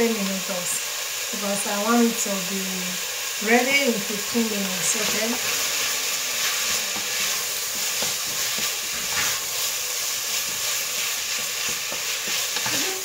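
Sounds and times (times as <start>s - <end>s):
onion and garlic sizzling in oil: 0.0s - 13.0s
faint stirring scrapes: 5.0s - 13.0s.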